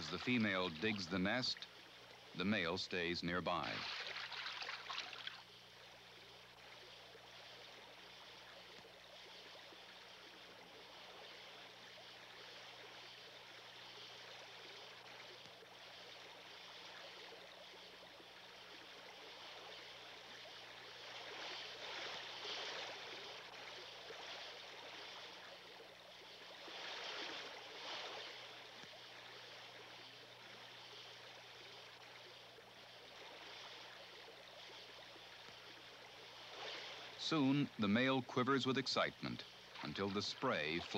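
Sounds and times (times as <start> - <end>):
stream running over gravel: 0.0 - 1.8, 2.4 - 5.5, 31.4 - 40.9.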